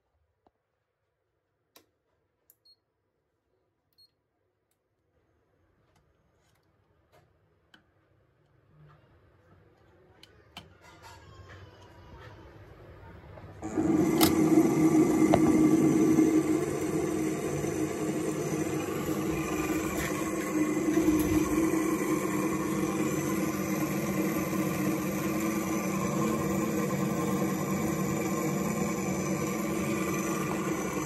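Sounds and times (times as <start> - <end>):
electric machine hum: 13.6 - 31.0.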